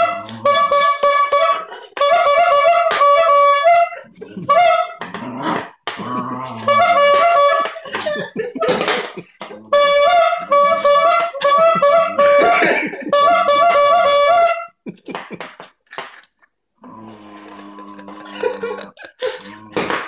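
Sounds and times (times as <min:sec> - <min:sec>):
bulb horn honking: 0:00.0 - 0:05.1, 0:06.6 - 0:08.0, 0:09.7 - 0:14.8.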